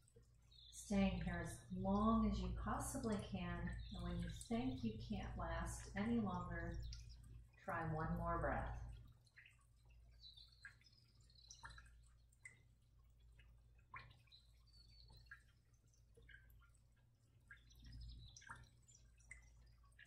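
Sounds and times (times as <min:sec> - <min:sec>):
steady low hum: 0:00.0 - 0:20.0
faint ticks: 0:08.6 - 0:20.0.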